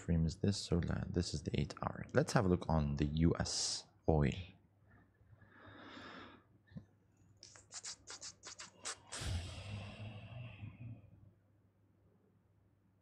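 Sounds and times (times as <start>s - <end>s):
short scratchy strokes: 7.4s - 9.7s.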